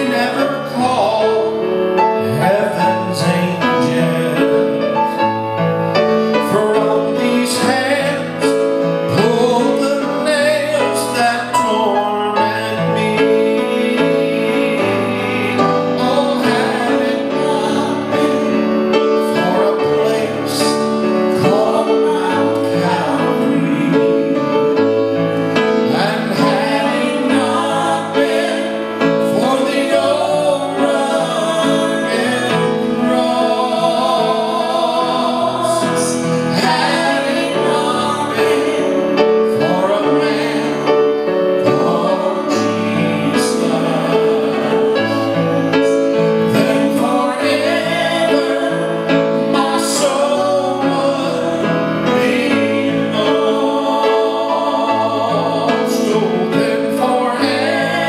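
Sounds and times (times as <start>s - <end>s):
man and woman singing: 0.0s - 5.5s, 6.2s - 58.0s.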